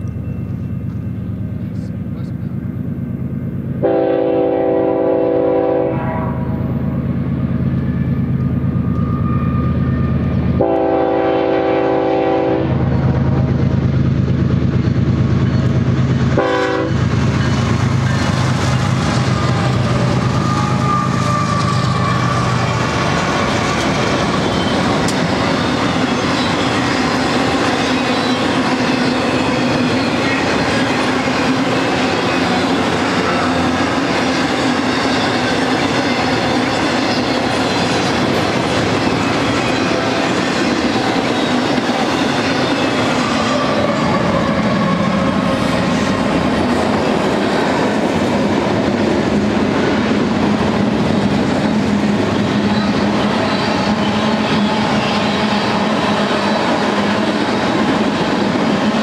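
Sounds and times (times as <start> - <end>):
diesel engines droning: 0.0 - 5.0
locomotive horn blasts: 3.8 - 6.6, 9.0 - 12.9, 16.4 - 17.1.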